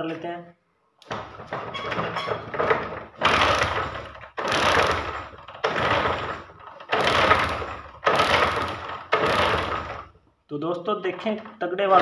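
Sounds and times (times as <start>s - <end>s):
motorcycle engine kick-start clatter: 1.1s - 10.2s.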